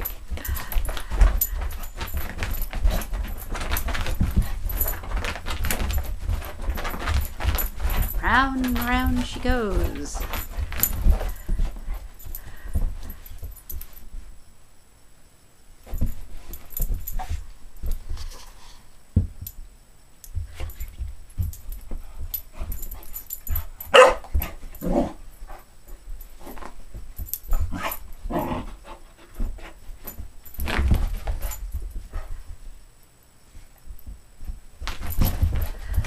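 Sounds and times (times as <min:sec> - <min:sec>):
puppy scrambling on carpet: 0:00.0 - 0:09.3, 0:20.4 - 0:32.8, 0:33.5 - 0:36.0.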